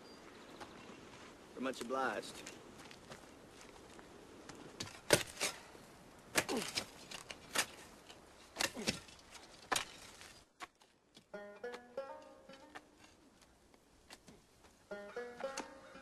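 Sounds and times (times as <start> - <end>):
picks striking earth: 1.8 - 16.0
plucked string tune: 11.3 - 13.2, 14.8 - 16.0.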